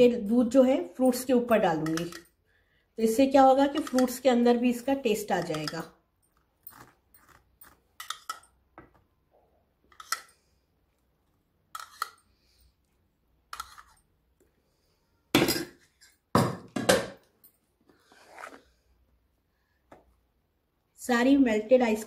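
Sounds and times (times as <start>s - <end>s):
metal spoon clinking on plastic bowl: 5.2s - 5.9s.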